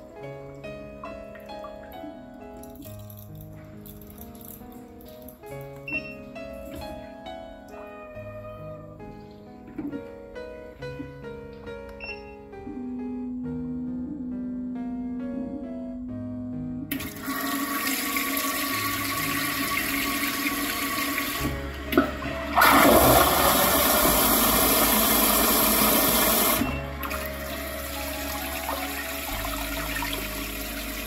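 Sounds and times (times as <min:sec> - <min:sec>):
toilet water running: 0:16.9 - 0:31.0.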